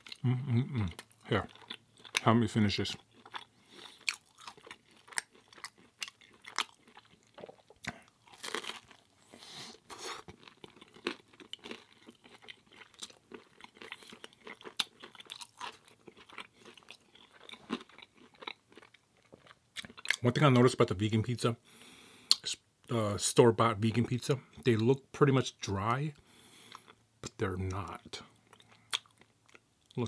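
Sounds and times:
pizza crust crunching: 8.2 - 9.1.

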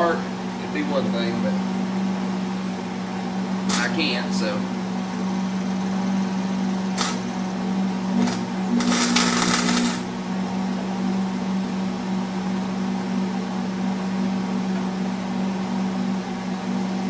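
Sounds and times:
steady hum: 0.0 - 17.0
welder arc crackling: 3.7 - 4.4, 7.0 - 7.3, 8.2 - 10.3.

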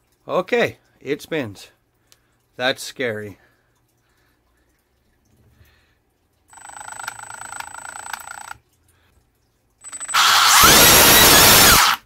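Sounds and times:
electric motor whining: 10.1 - 12.0.

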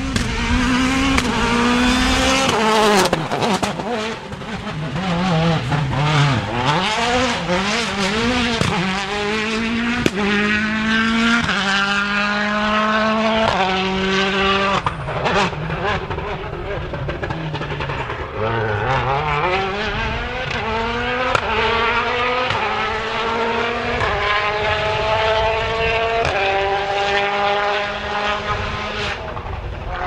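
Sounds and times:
exhaust cracks: 0.0 - 12.2, 13.4 - 26.4
rally car engine revving: 0.0 - 30.0.

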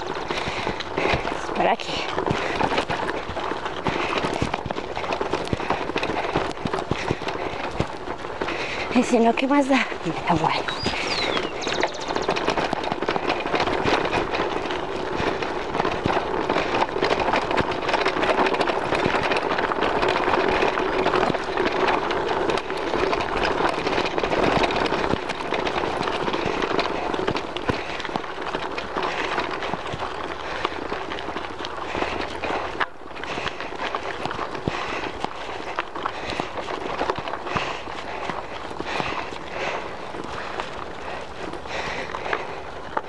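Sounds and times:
bike clattering over bumps: 0.0 - 43.0
bike tyres crunching on gravel: 0.0 - 43.0.

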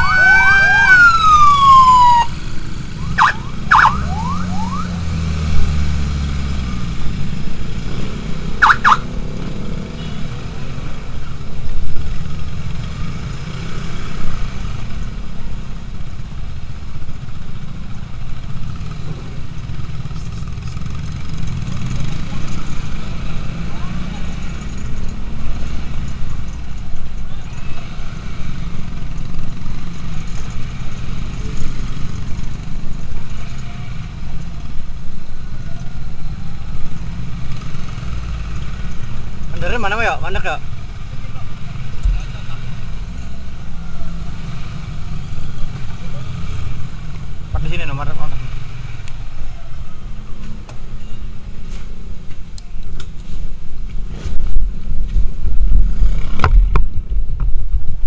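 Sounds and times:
motorcycle engine rumbling: 0.0 - 58.0
wind rumble on microphone: 54.3 - 58.0.

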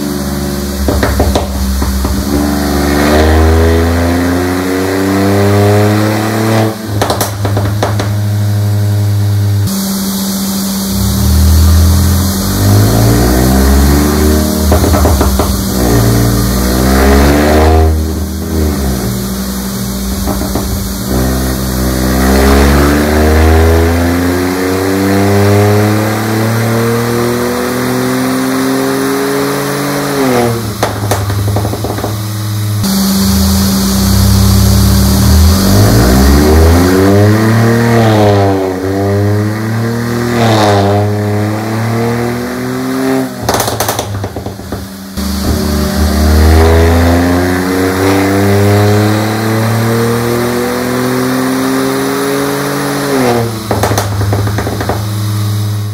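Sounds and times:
car engine revving: 0.0 - 55.9
exhaust pops and crackles: 0.7 - 2.7, 6.9 - 8.4, 14.6 - 16.8, 18.0 - 22.0, 30.3 - 32.9, 43.4 - 46.7, 53.2 - 55.6.

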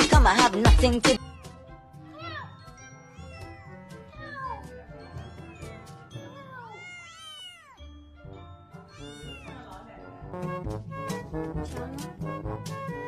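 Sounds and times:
background music: 0.0 - 13.0
kitten meowing: 1.2 - 1.6, 6.3 - 7.9, 8.9 - 9.7.

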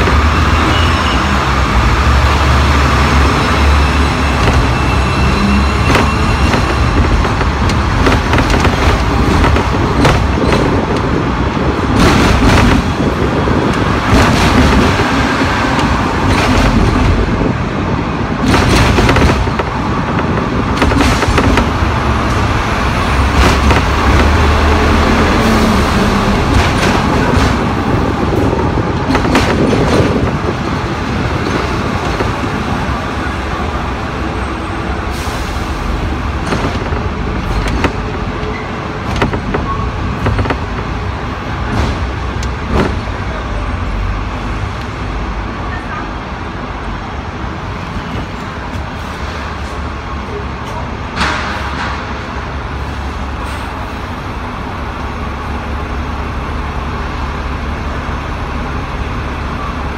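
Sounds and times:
tram wheels rumbling on rail: 0.0 - 59.9
sharp knocks: 5.8 - 11.1, 18.4 - 24.8, 36.3 - 41.0.

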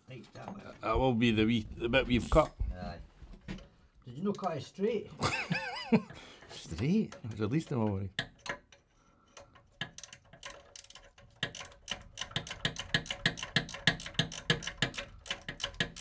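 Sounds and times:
ratcheting spanner clicking: 8.2 - 16.0.

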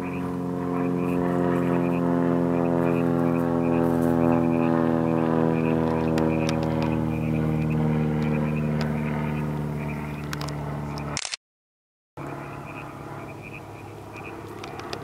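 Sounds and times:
camera shutter clicks: 10.3 - 11.4.

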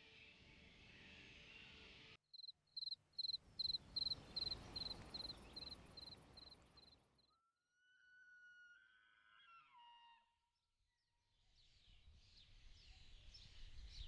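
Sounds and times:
insect chirping: 2.4 - 7.0
faint background noise: 2.8 - 7.2.

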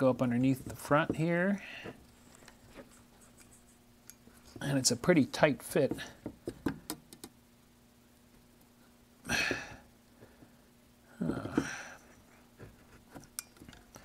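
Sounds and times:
breathy exhalations of effort: 9.2 - 10.5, 11.1 - 12.2.

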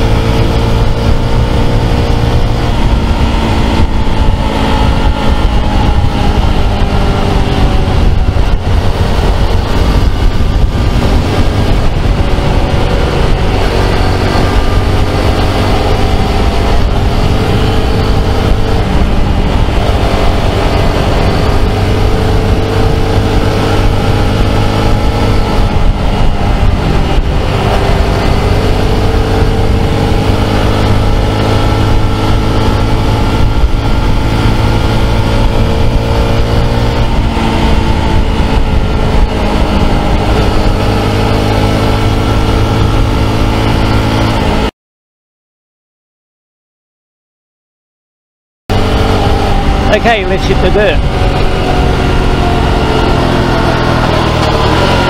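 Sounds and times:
motorcycle engine cruising: 0.0 - 44.7, 48.7 - 55.0.

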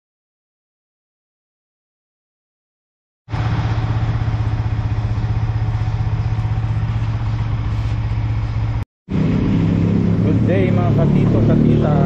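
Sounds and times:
motorcycle engine idling: 3.3 - 12.0.

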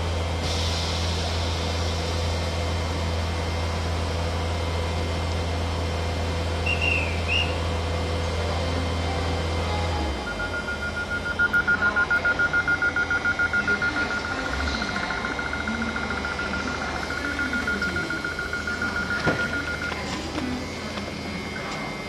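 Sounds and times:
train door warning beeps: 6.6 - 7.6, 9.7 - 22.0.

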